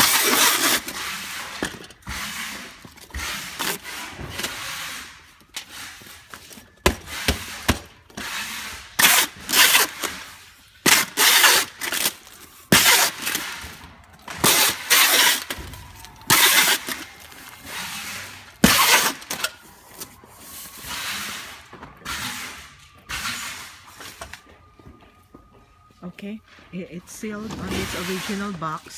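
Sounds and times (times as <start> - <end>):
packing tape ripping off tape gun: 0.0 - 1.0, 9.0 - 13.7, 14.3 - 17.1, 18.6 - 19.6.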